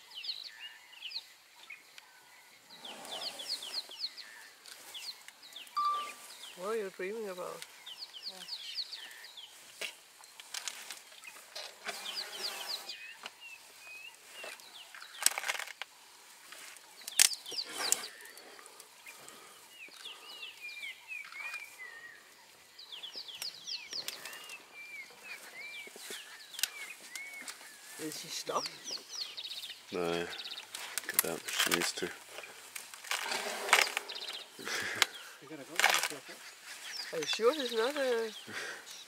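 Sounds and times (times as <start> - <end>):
birds whistling and trilling: 2.6 - 6.8, 11.0 - 15.4, 17.0 - 39.0.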